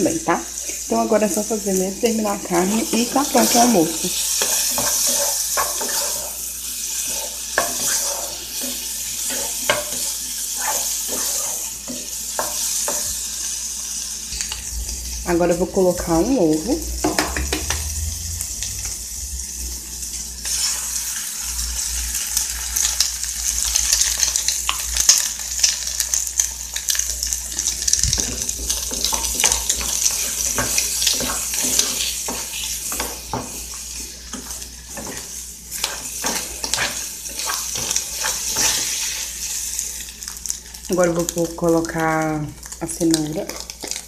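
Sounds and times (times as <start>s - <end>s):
meat sizzling in a pan: 0.0s - 44.0s
spatula knocking against pan: 17.0s - 17.8s.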